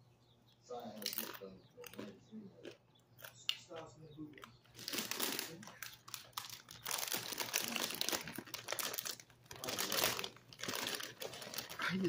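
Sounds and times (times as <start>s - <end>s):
plastic snack bag crinkling: 4.7s - 12.0s.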